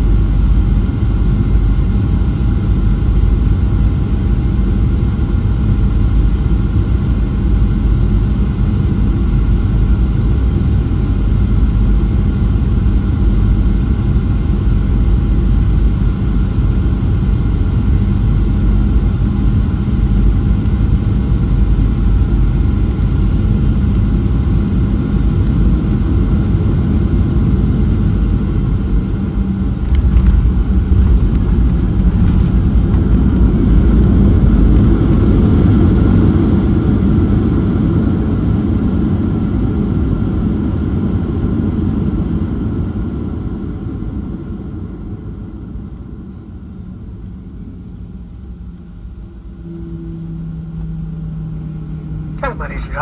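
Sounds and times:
jet engines rumbling: 0.0 - 37.8, 42.8 - 53.0
wheels rumbling on runway: 25.4 - 36.6.

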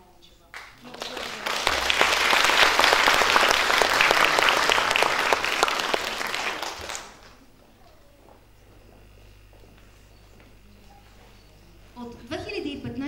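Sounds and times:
audience applauding: 0.5 - 7.5.

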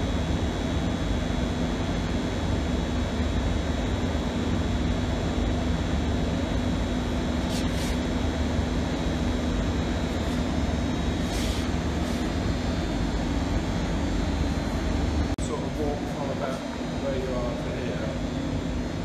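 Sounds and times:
short hissing brushes: 7.4 - 8.2, 11.2 - 12.3.

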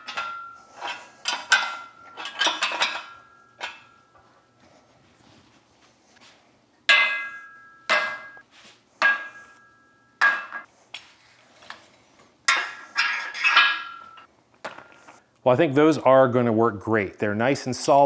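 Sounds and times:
metal pins clanking and ringing: 0.0 - 4.6, 6.9 - 8.4, 9.0 - 10.7, 12.5 - 14.3.

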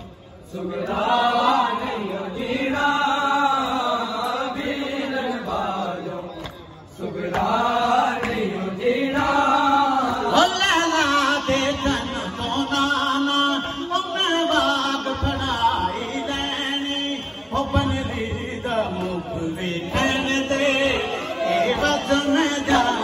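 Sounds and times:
men chanting a lament: 0.0 - 23.0.

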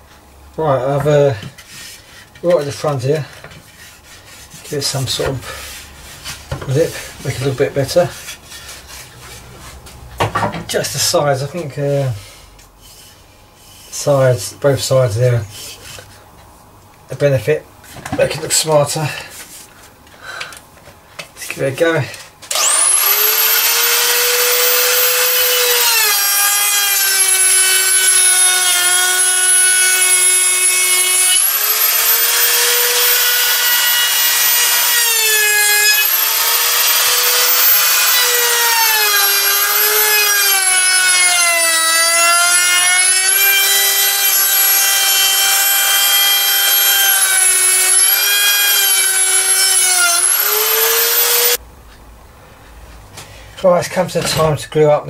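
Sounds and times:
electric router whining: 22.5 - 51.6
router cutting wood: 22.5 - 51.6.

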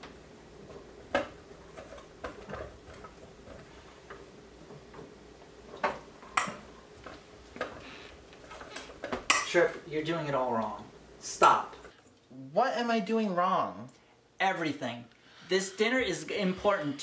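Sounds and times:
faint steady hum: 0.0 - 17.0
utensils clicking against bowls and pots: 6.3 - 7.7.

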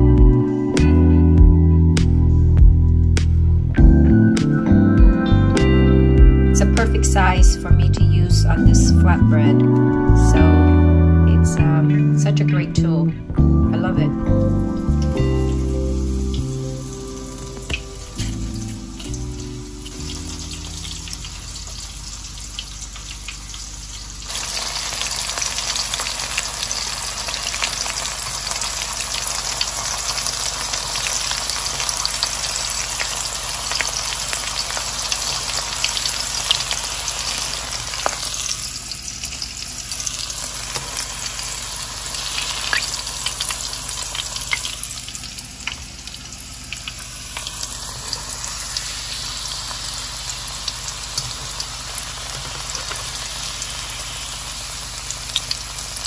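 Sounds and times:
meat frying in hot oil: 15.2 - 56.0.

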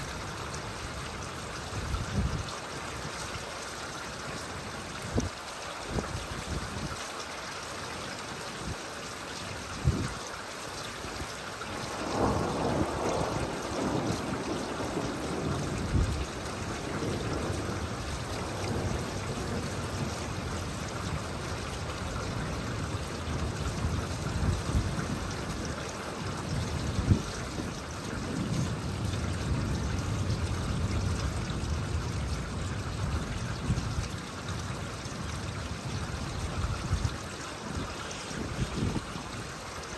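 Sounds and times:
steady rain falling: 0.0 - 39.9
low rolling thunder: 11.7 - 39.9.

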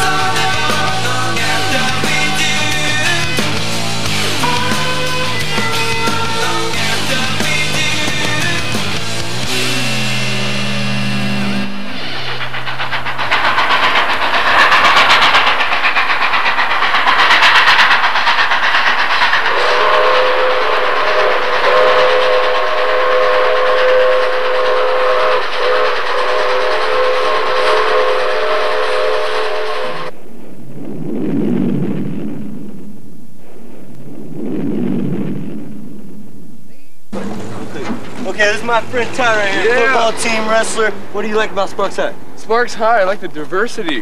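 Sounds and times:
steady whistle chord: 0.0 - 12.9
fast rhythmic clatter: 0.0 - 28.8
rushing noise: 0.0 - 44.0.

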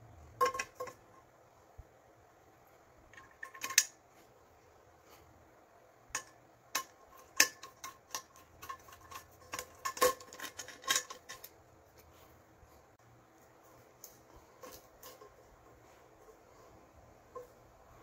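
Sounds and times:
screwdriver clicking and scraping: 3.1 - 4.0, 6.2 - 12.1.

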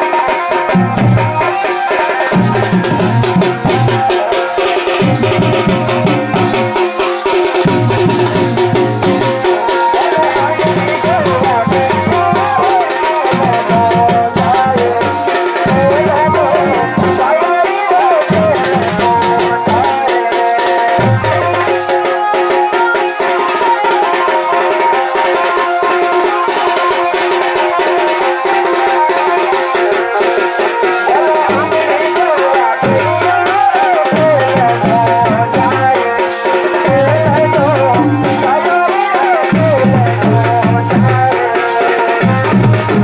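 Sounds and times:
wavering melody line: 0.0 - 27.5
folk drumming: 0.0 - 43.0.

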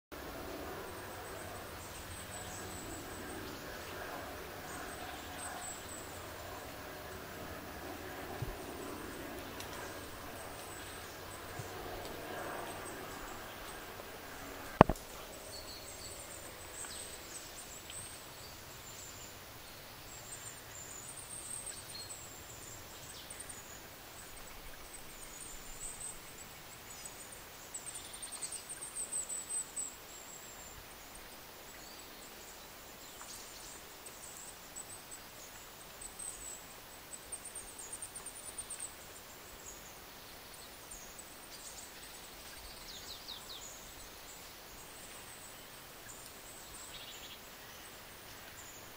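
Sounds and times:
faint background hiss: 0.1 - 48.9.

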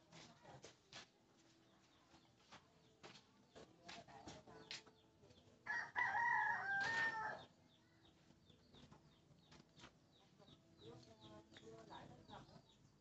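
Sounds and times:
rooster crowing: 5.7 - 7.5.

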